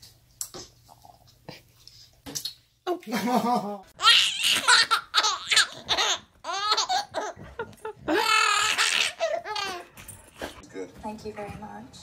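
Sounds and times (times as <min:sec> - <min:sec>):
baby laughing: 0:03.4 - 0:09.9.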